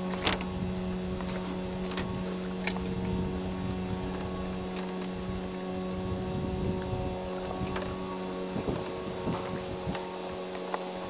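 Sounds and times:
boat motor humming: 0:00.0 - 0:11.0.

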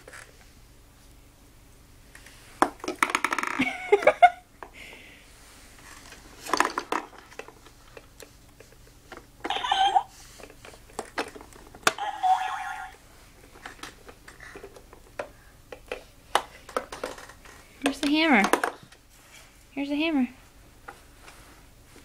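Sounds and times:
plastic clacks and knocks: 0:02.6 - 0:03.7, 0:06.4 - 0:08.1, 0:10.5 - 0:12.0, 0:13.6 - 0:18.9
toy electronic sound effects: 0:12.0 - 0:13.0.

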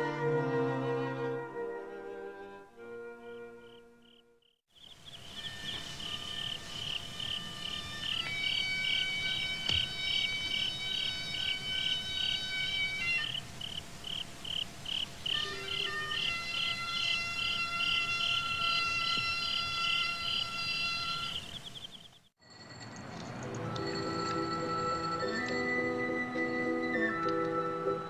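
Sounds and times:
insects chirping: 0:03.3 - 0:28.0
music with held tones: 0:23.4 - 0:28.0.

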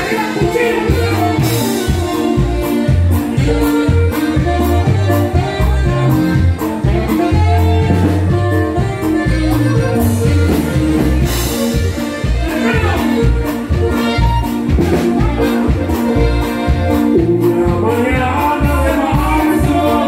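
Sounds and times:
live band music: 0:00.0 - 0:20.0
person singing: 0:14.8 - 0:20.0.

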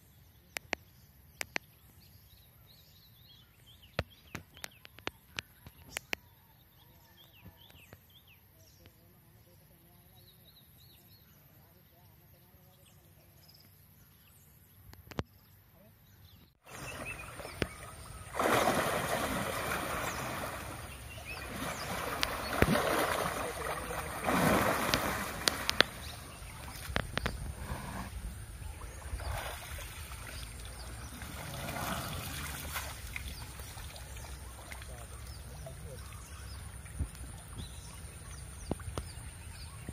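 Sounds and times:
water splashing around elephant: 0:16.7 - 0:39.7.

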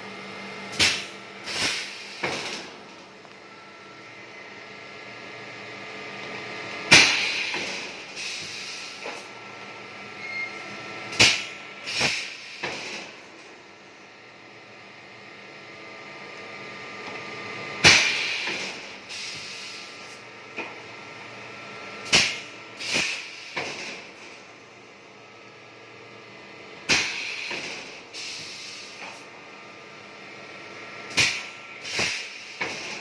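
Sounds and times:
air exhaust bursts with clunk: 0:00.7 - 0:03.1, 0:06.9 - 0:09.4, 0:11.1 - 0:13.5, 0:17.8 - 0:20.8, 0:22.0 - 0:24.4, 0:26.8 - 0:29.4, 0:31.1 - 0:33.0
compressed air hissing: 0:00.8 - 0:02.4, 0:28.2 - 0:29.1.

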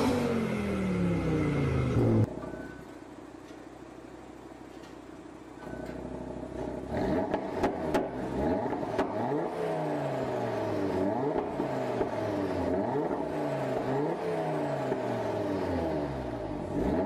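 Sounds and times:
car engine revving: 0:00.0 - 0:02.4, 0:06.2 - 0:17.0.

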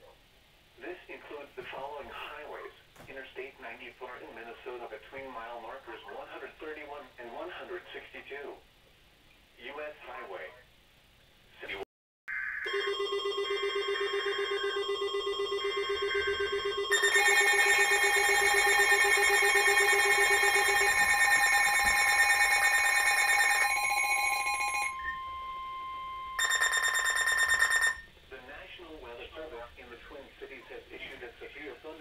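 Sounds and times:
steady alert tone: 0:12.3 - 0:28.0
fast-pulsing alarm beep: 0:12.6 - 0:28.1
screeching digital alert bursts: 0:16.1 - 0:28.0.

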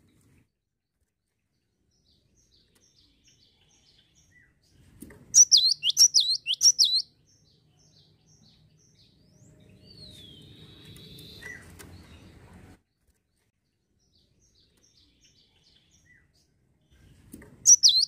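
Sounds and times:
bird singing high notes: 0:05.4 - 0:07.0.

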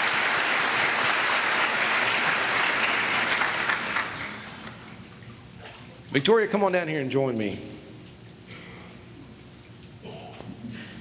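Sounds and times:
congregation applauding: 0:00.0 - 0:04.9.

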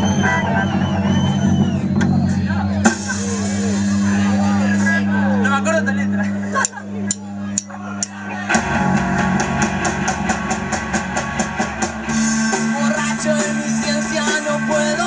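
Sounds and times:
rock band playing: 0:00.0 - 0:15.0
drumstick count-in clicks: 0:06.6 - 0:08.2.

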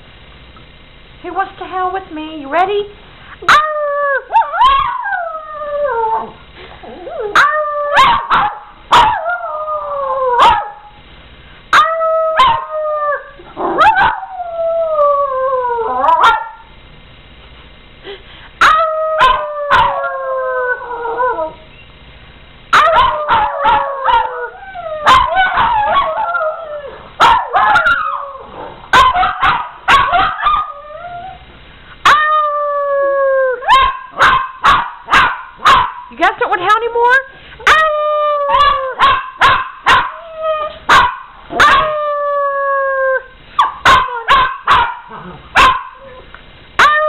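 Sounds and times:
small dogs howling: 0:03.5 - 0:10.8, 0:11.8 - 0:16.6, 0:18.6 - 0:21.6, 0:22.7 - 0:31.4, 0:32.0 - 0:34.3, 0:37.6 - 0:40.8, 0:41.5 - 0:46.2, 0:46.8 - 0:47.0
dogs yipping and barking: 0:07.4 - 0:09.2, 0:10.4 - 0:10.8, 0:18.6 - 0:20.0, 0:22.7 - 0:24.4, 0:25.0 - 0:26.4, 0:27.2 - 0:31.0, 0:33.7 - 0:36.0, 0:38.5 - 0:42.0, 0:43.6 - 0:46.1.

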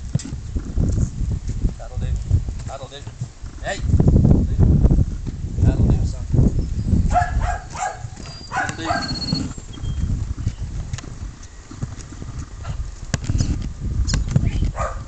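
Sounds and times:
footsteps on loose dirt: 0:00.0 - 0:03.4, 0:07.1 - 0:15.0.

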